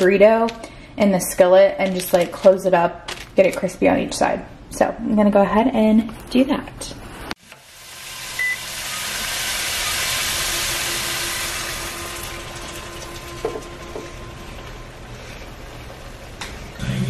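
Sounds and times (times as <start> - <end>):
food sizzling in a skillet: 7.4 - 15.8.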